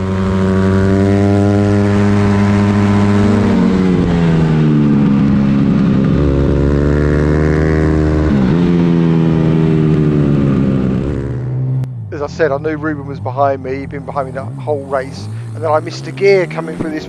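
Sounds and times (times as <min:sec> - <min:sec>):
motorbike engine revving high: 0:00.0 - 0:17.0.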